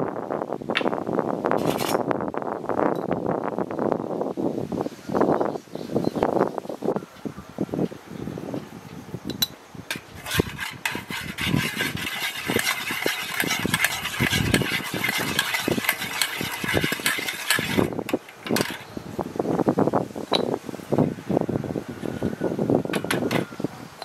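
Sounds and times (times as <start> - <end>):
metal spoon scraping a pot: 9.9 - 18.9.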